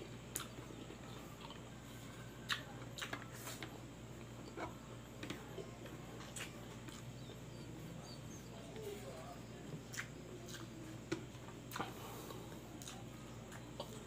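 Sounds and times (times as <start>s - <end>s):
low steady hum: 0.0s - 14.0s
wet chewing mouth smacks: 9.9s - 10.7s.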